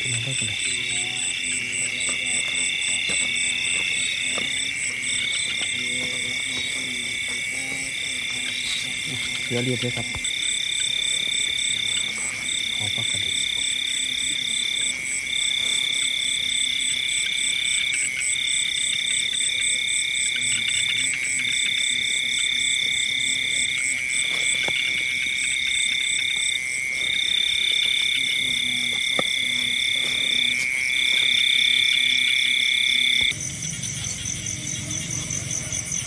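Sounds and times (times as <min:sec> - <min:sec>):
low frog croaks: 0:00.0 - 0:36.0
repeated high frog call: 0:00.0 - 0:36.0
shrill insect drone: 0:00.0 - 0:36.0.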